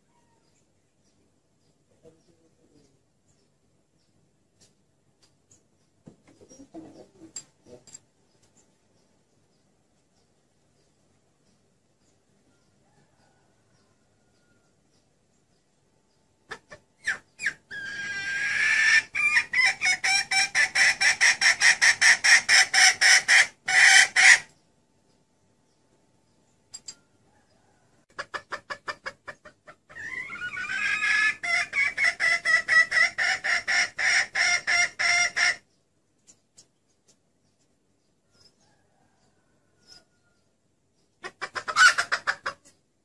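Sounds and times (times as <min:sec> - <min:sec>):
hen cackling: 0:16.4 - 0:24.6, 0:28.1 - 0:35.7, 0:41.2 - 0:42.7.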